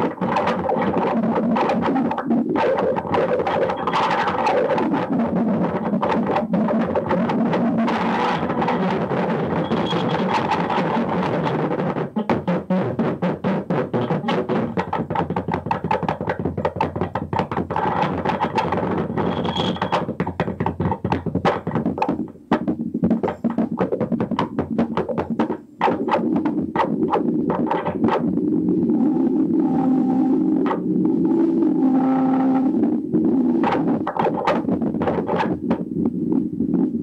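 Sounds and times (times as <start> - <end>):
droning hum: 26.2 - 35.1.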